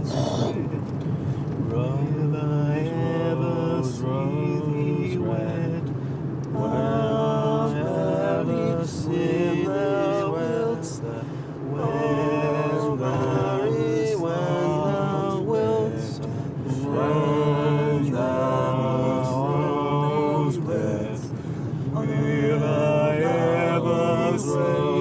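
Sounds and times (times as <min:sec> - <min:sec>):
car hum: 0:00.0 - 0:25.0
men chanting together: 0:06.6 - 0:25.0.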